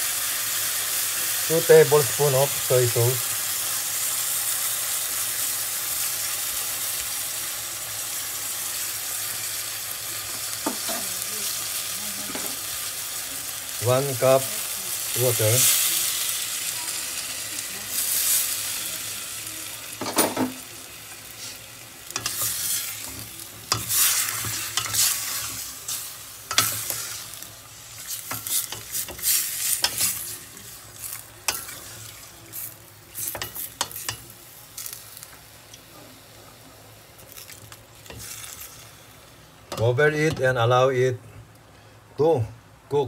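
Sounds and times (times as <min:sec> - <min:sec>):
meat sizzling: 0:00.0 - 0:41.0.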